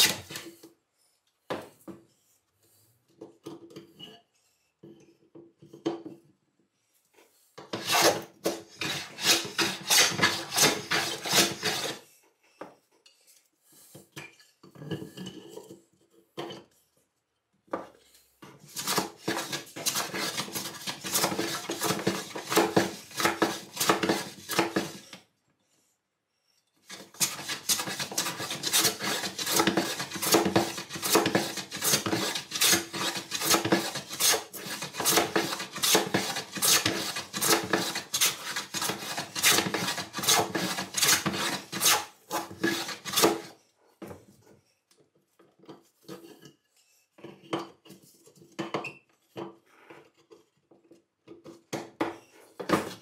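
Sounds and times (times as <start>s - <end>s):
hand tool scraping wood: 0.0s - 0.7s, 7.3s - 12.1s, 17.8s - 25.2s, 26.8s - 43.6s.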